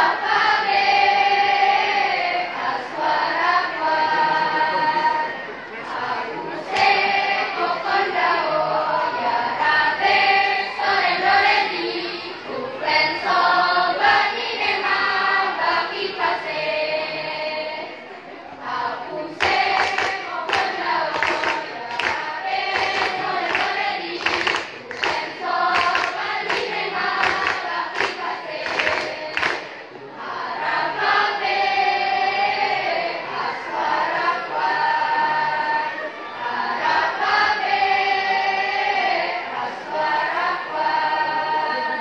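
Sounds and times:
girls' choir singing: 0:00.0 - 0:42.0.

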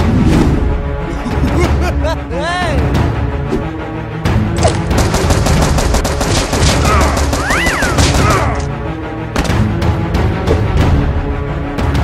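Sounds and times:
rapid automatic gunfire: 0:04.9 - 0:08.4.

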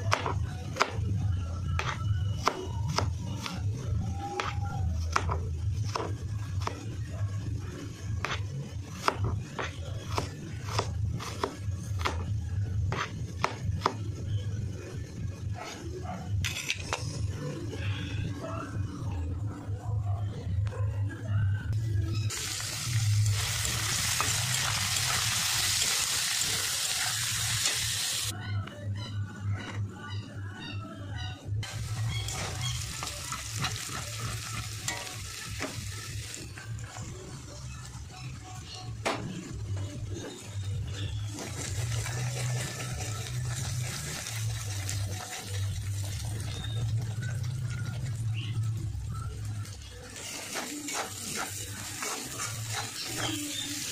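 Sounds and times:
vegetables sizzling in a pan: 0:22.3 - 0:28.3, 0:31.7 - 0:36.4, 0:50.1 - 0:53.9
metal spatula stirring: 0:50.2 - 0:53.6.

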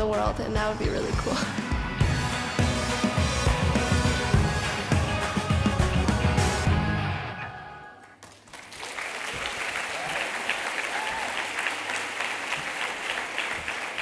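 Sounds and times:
music: 0:00.0 - 0:08.1
audience applauding: 0:07.9 - 0:14.0.

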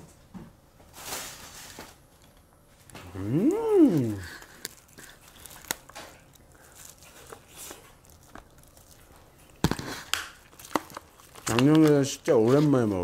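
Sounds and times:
crab shell crunching while eating: 0:02.9 - 0:12.9.

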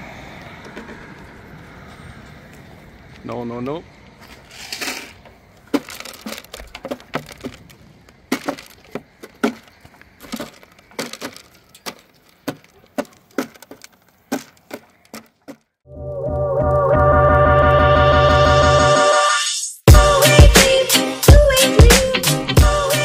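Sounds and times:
sharp cracking and crunching: 0:04.1 - 0:15.8.

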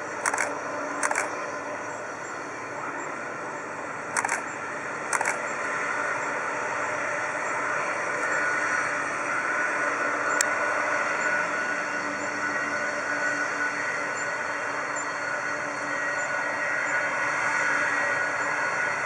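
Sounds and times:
jet engines whining: 0:00.0 - 0:19.0
sharp clicks: 0:00.1 - 0:01.4, 0:04.2 - 0:05.5.

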